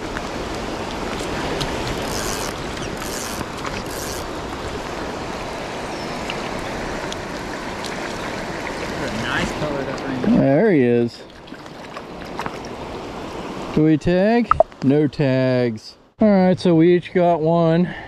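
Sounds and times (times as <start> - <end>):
creek water rushing: 0.0 - 10.6.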